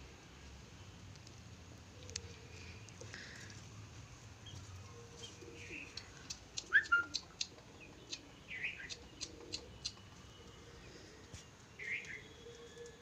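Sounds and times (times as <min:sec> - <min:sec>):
bird chirp: 0:05.2 - 0:10.5.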